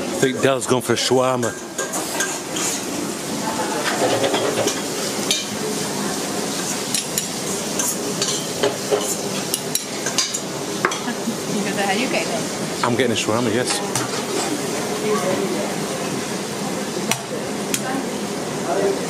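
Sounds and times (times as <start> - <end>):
food sizzling: 0.0 - 19.0
serving utensils clinking: 6.9 - 11.2.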